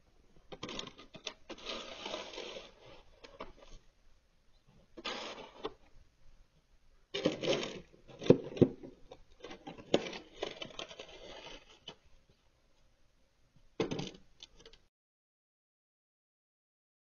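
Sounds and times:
snow shovel scraping: 1.5 - 3.7, 5.0 - 5.8, 9.9 - 11.8.

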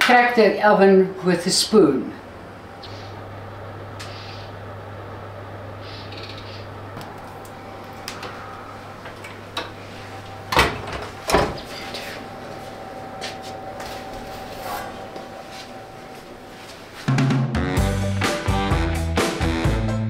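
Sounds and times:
oven door knocks: 10.5 - 11.7.

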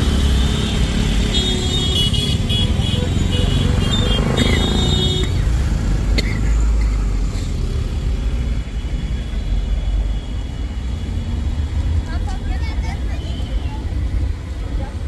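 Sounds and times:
traffic engines rumbling: 0.0 - 15.0
vehicle horn: 0.1 - 5.4.

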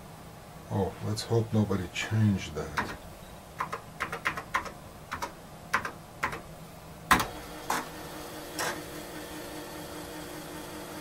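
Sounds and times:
floppy disk drive humming: 1.0 - 11.0
keyboard keys clicking: 2.8 - 3.0, 3.6 - 6.4.

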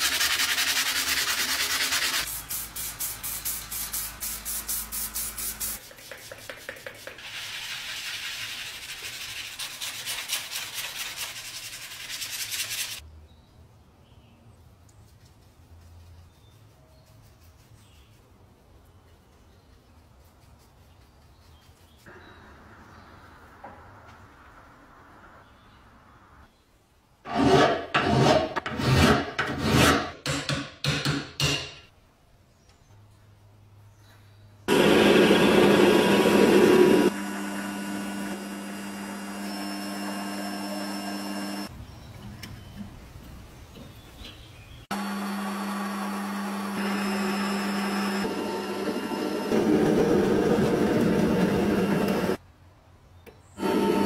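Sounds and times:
sanding strokes on cast iron: 0.0 - 13.0
file rasping on metal: 27.3 - 30.1.

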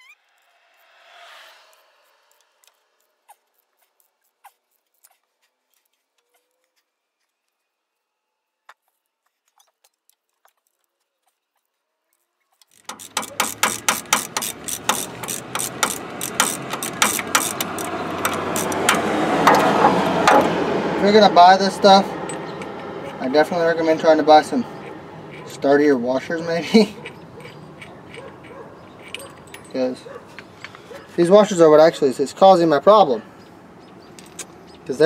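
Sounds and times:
ratchet wrench clicking rapidly: 12.6 - 20.5, 22.3 - 29.9.

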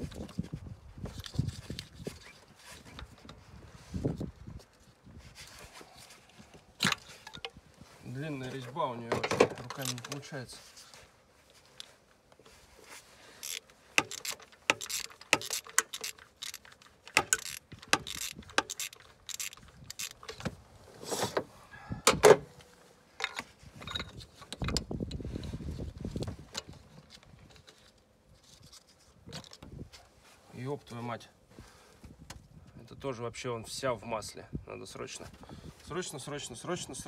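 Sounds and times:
ratchet wrench clicking: 13.4 - 20.4.

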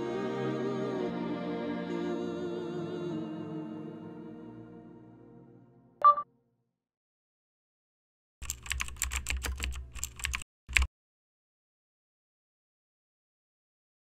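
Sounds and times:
short electronic blip: 6.0 - 6.2
keyboard key clicks: 8.4 - 10.9.

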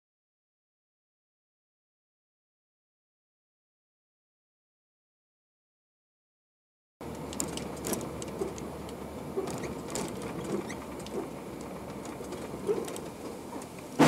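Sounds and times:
small clicks and rattles in cab: 7.0 - 14.0
vehicle engine and road noise: 7.0 - 14.0.

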